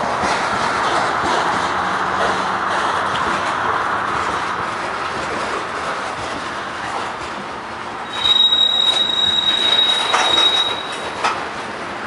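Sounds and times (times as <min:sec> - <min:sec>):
train cars rolling on steel wheels: 0:00.0 - 0:12.0
high-pitched metallic squeal: 0:08.0 - 0:11.5.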